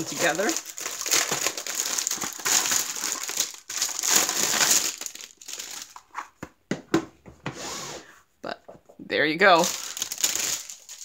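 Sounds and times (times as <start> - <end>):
plastic film crinkling: 0.0 - 6.2, 9.4 - 11.0.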